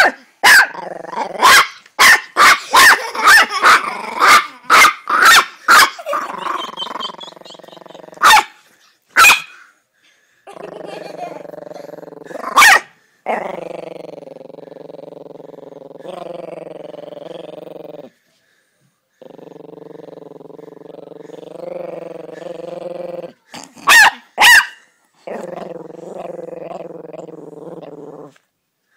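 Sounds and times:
small dog barking sharply: 0.0 - 0.8, 1.4 - 3.5, 4.3 - 6.0, 8.2 - 8.5, 9.2 - 9.6, 12.6 - 12.9, 23.8 - 24.8
small dog growling: 0.7 - 1.5, 6.0 - 8.3, 10.5 - 18.2, 19.2 - 24.0, 25.2 - 28.4.

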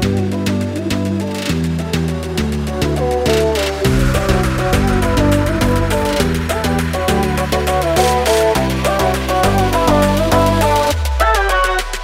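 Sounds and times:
upbeat electronic music: 0.0 - 12.0.

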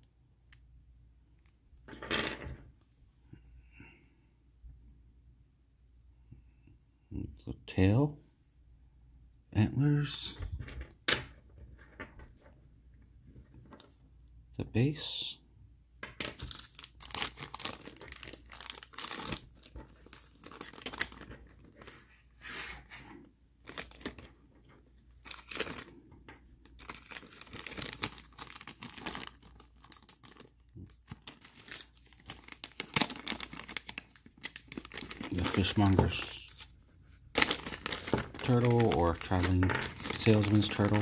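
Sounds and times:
plastic bags crinkling: 16.4 - 21.9, 23.6 - 24.3, 25.1 - 26.0, 26.6 - 41.0.

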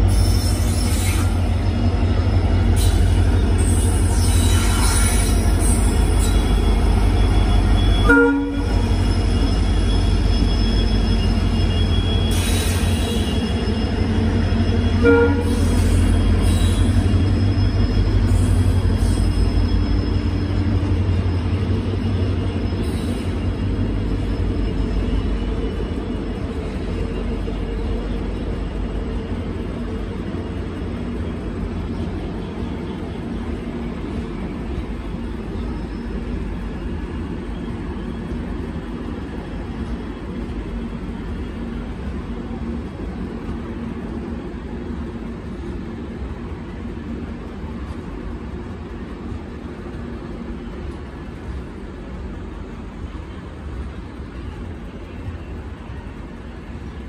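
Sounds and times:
train wheels rumbling on rails: 0.0 - 57.0
train horn blasts: 7.9 - 8.9, 14.9 - 15.9.

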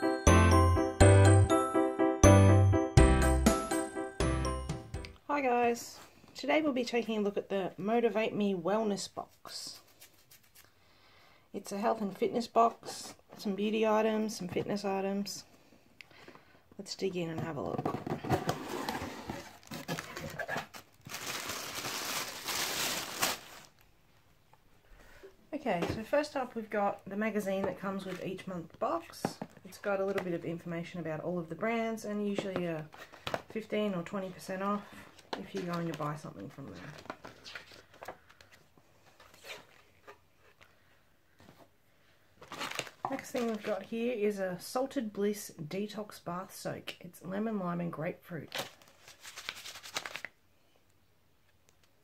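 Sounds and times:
magazine pages rustling: 18.2 - 23.9, 32.3 - 33.6, 34.8 - 41.7, 42.4 - 43.9, 48.5 - 50.4
tissue paper rustling: 18.5 - 23.8, 48.6 - 50.3.

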